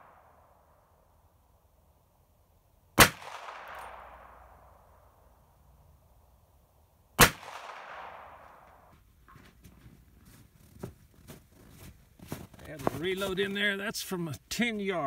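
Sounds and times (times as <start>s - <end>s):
revolver shots with echo: 3.0s - 4.5s, 7.2s - 8.4s.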